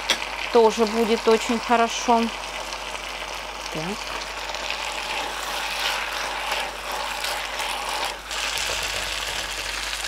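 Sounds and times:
pasta sizzling in a frying pan: 0.0s - 10.0s
wooden spatula scraping a pan: 4.1s - 9.5s.

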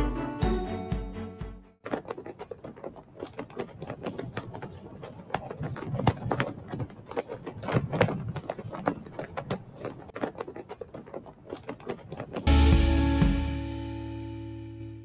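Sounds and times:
flag flapping in wind: 1.8s - 12.5s.

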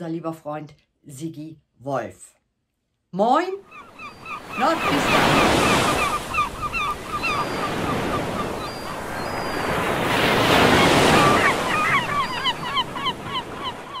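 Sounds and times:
wind: 3.2s - 14.0s
flock of birds calling: 3.6s - 14.0s
surf washing in: 4.4s - 14.0s.

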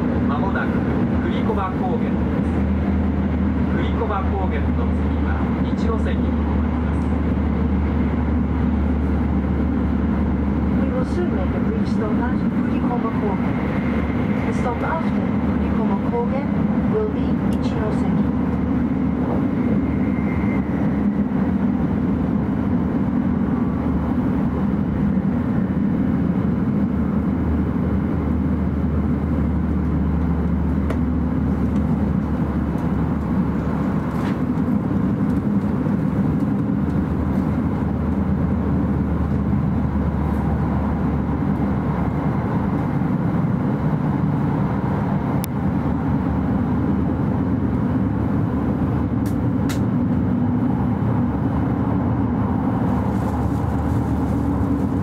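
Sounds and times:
train cabin rumble and rush: 0.0s - 55.0s.

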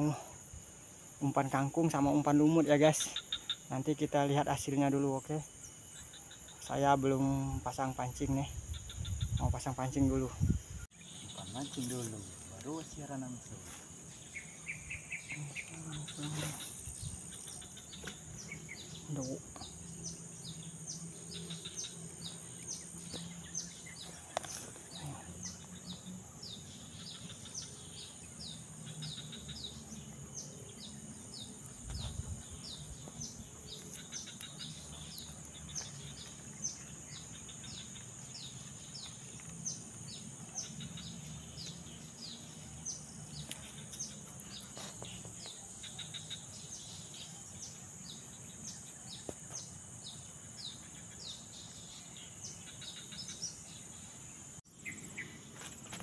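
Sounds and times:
steady high insect hum: 0.0s - 56.0s.

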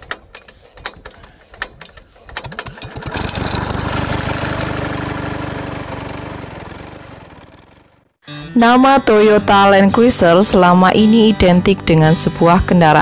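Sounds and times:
engine sputtering and running: 2.4s - 8.2s.

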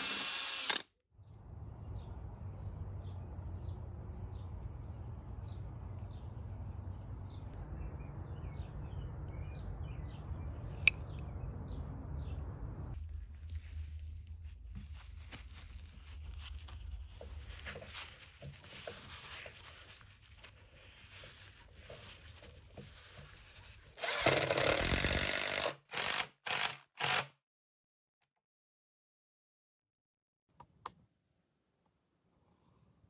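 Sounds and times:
power drill driving a screw: 0.0s - 0.9s, 24.0s - 27.4s.

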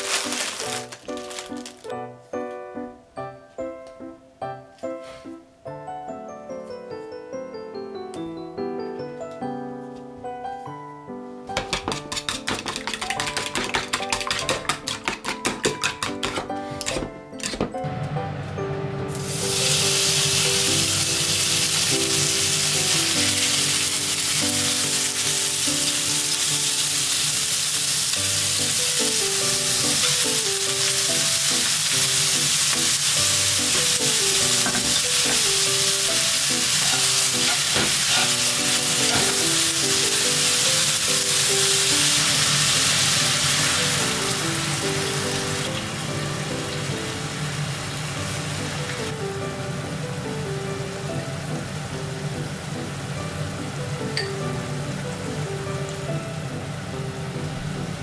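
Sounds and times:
meat sizzling in hot oil: 19.1s - 49.2s.

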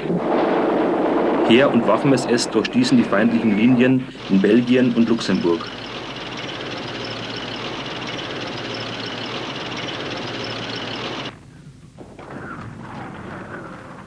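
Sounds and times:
vehicle engine running: 4.1s - 11.3s.

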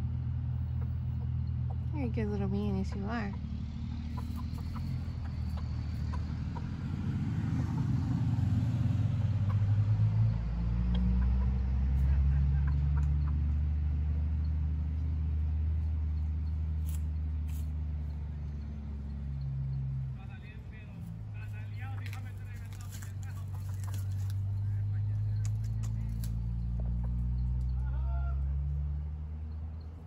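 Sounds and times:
vehicle engine running: 0.0s - 30.0s.

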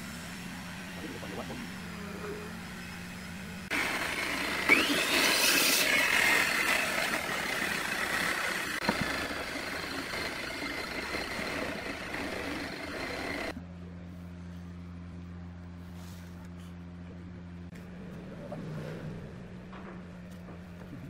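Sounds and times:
machine noise: 0.0s - 13.6s
whine sweeping up and down: 0.0s - 13.6s.

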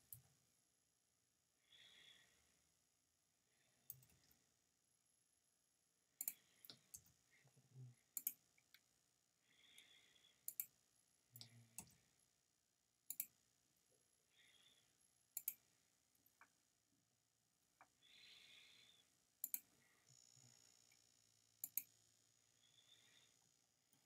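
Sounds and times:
computer mouse clicking: 6.2s - 7.1s, 8.2s - 8.4s, 10.5s - 10.7s, 13.1s - 13.3s, 15.4s - 15.6s, 19.4s - 19.7s, 21.6s - 21.9s.

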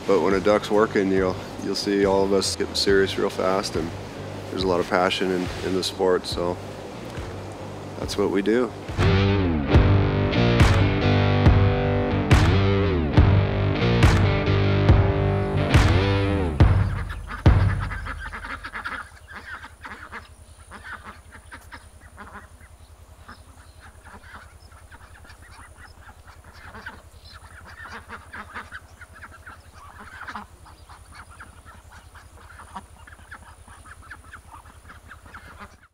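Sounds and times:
steady low hum: 0.0s - 35.9s
waterfowl honking and quacking: 16.0s - 35.9s.

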